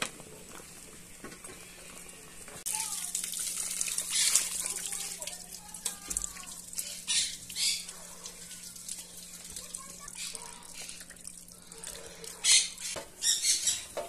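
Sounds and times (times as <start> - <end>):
water sloshing and splashing: 2.6 - 12.4.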